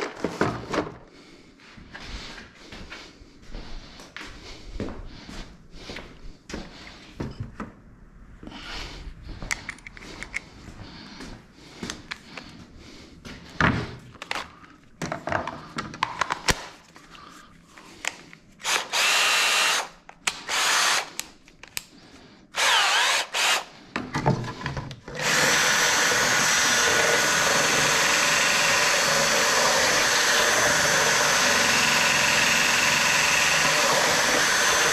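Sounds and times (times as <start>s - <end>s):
power drill bursts: 18.6s - 21.1s, 22.6s - 23.7s, 25.1s - 34.9s
loud steady mechanical run: 25.2s - 34.9s.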